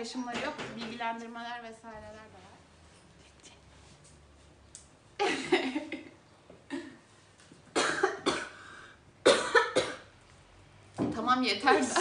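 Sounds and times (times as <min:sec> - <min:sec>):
person coughing: 0:06.7 - 0:07.0, 0:07.8 - 0:08.7, 0:09.3 - 0:10.1.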